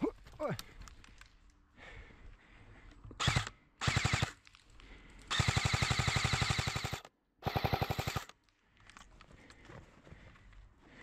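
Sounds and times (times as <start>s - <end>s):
airsoft gun firing full auto: 3.2s - 4.4s, 5.3s - 8.3s.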